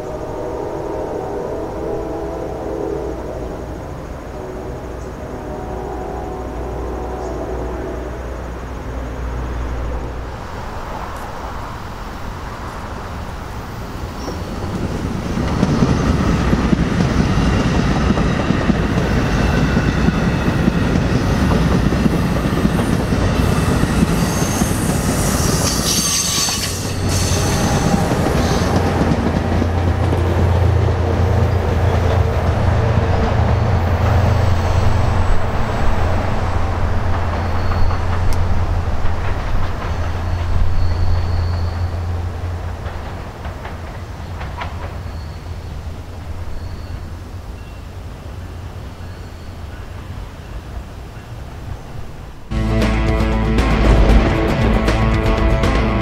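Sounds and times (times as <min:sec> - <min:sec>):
locomotive engine hum: 0:00.0 - 0:56.0
train rolling rumble: 0:00.0 - 0:56.0
wheel squeal: 0:22.4 - 0:28.9, 0:37.3 - 0:38.5, 0:39.8 - 0:42.1
wheels clattering over rails: 0:35.2 - 0:46.7.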